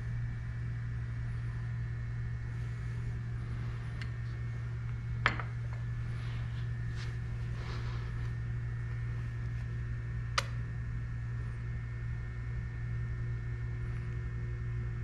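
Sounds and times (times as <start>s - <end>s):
steady low hum: 0.0s - 15.0s
sharp click: 10.4s - 10.6s.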